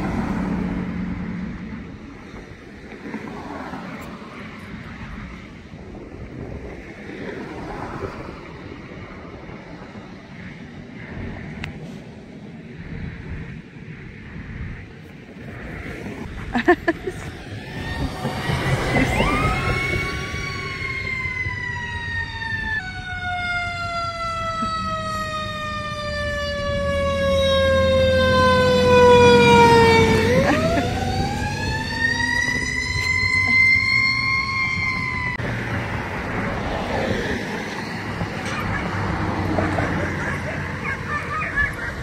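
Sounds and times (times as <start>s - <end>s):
emergency vehicle siren wailing: 16.6s - 42.0s.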